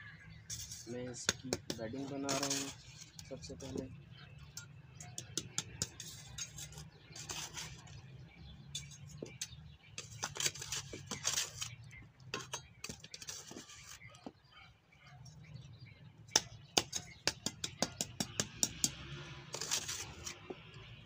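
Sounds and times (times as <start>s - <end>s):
trowel scraping sand: 0.5s - 3.9s, 5.5s - 8.1s, 8.7s - 14.2s, 18.4s - 20.6s.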